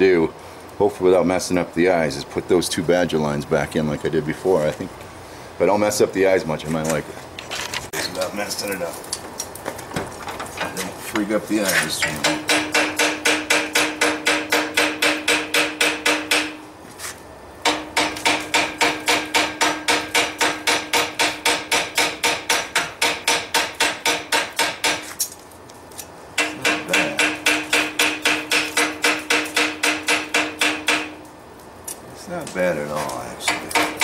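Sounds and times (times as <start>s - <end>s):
hammer striking metal chisel: 12.0s - 16.6s, 17.6s - 25.2s, 26.4s - 31.2s, 33.5s - 34.0s.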